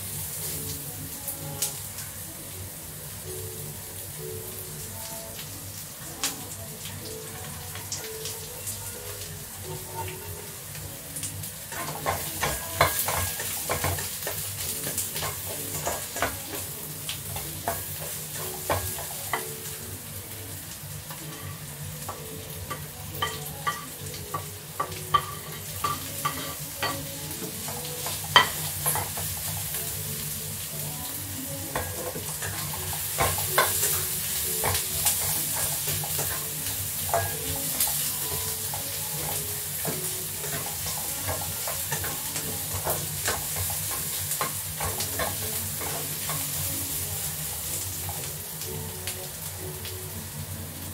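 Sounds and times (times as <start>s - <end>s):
food sizzling in oil: 0.0s - 50.9s
spatula tapping pan: 11.1s - 19.8s, 22.0s - 30.0s, 31.6s - 48.3s.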